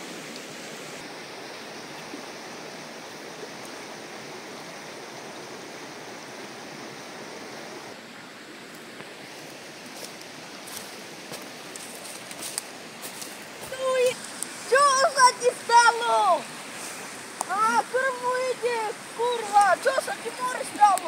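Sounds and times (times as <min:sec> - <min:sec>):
flowing river water: 0:00.0 - 0:21.0
footsteps in dry brush: 0:09.3 - 0:14.6.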